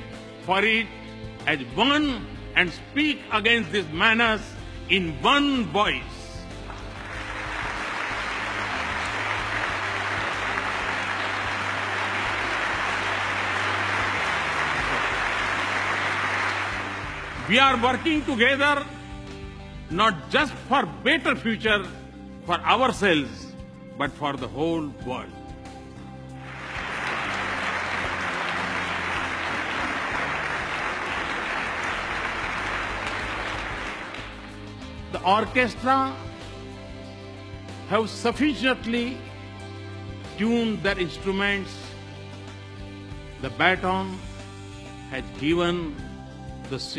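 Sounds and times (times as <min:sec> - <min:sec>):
audience applauding: 0:06.7 - 0:18.4, 0:26.4 - 0:34.7.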